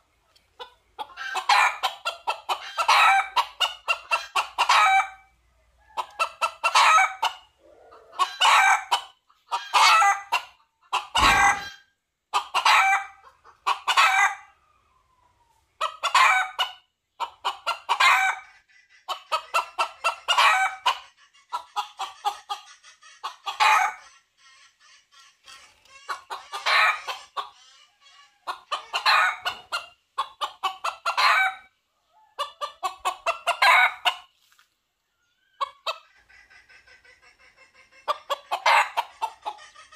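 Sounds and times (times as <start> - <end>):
junglefowl calling: 9.5 - 11.8
low thump: 11.2 - 11.7.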